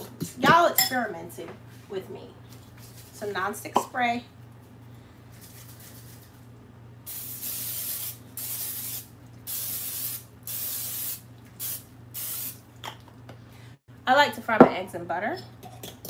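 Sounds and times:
cooking spray hissing bursts: 7.1 - 12.7.

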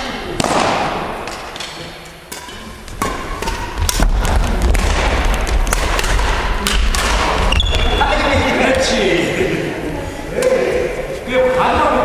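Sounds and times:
rackets striking shuttlecock: 0.4 - 8.0.

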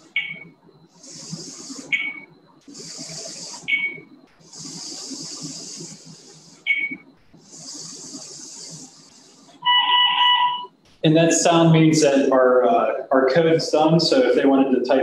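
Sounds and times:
small drive motors whirring: 0.0 - 10.9.

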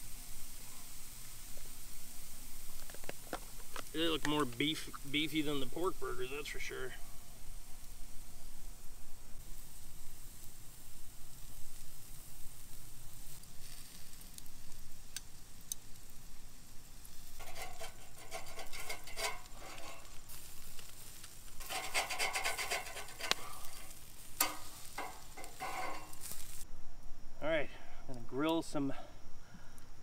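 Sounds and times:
meat sizzling on a grill: 0.0 - 26.7
metal spatula scraping grill grate: 13.3 - 14.4, 16.9 - 26.6.

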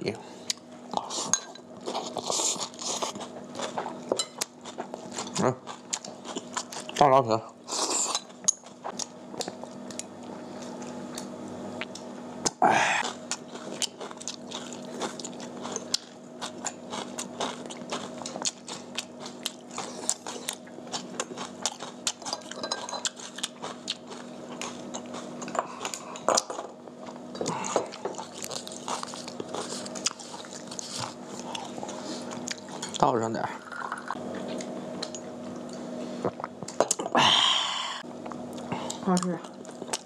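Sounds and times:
steady low hum: 0.0 - 40.0
people chewing and crunching: 0.4 - 40.0
breathy sound: 12.6 - 13.0, 37.2 - 38.0.

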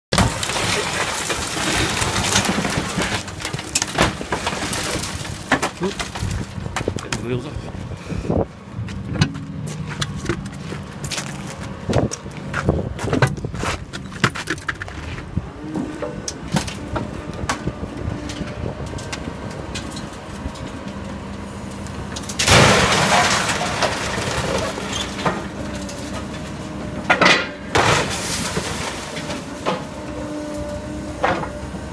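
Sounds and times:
crash of crumpling metal and glass: 0.1 - 6.6, 22.3 - 26.3, 27.2 - 29.9
crane engine running: 7.6 - 31.9.

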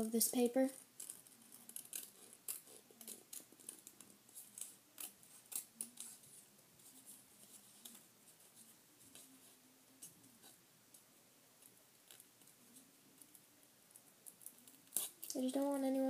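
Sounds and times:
scissors snipping paper: 1.0 - 6.3.

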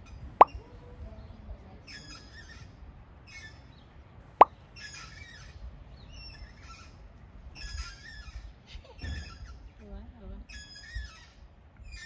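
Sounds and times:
faint high-pitched chirps: 10.4 - 12.0.

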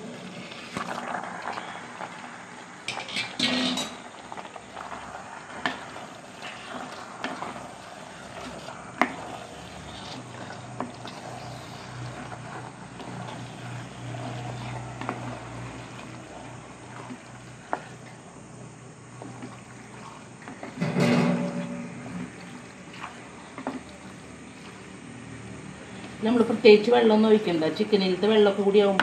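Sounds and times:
ladle stirring wet food: 0.0 - 29.0.

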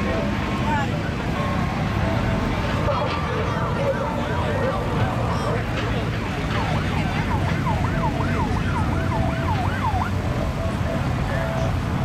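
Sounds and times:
emergency siren yelping: 3.3 - 5.7, 6.3 - 11.1.

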